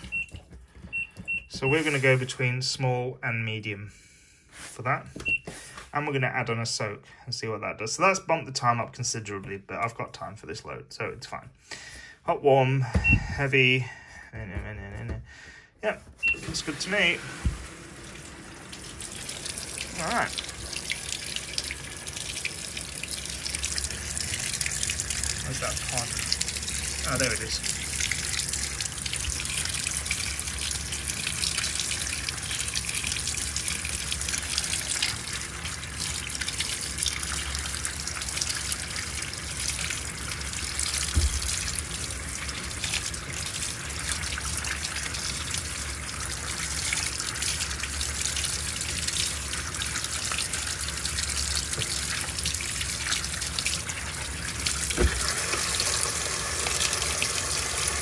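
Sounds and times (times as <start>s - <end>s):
water pouring into washing machine: 16.2s - 58.0s.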